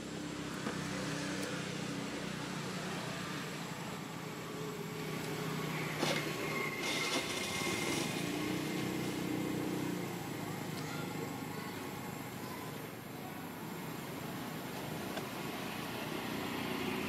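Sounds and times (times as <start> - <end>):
small engine running: 5.5 - 10.4.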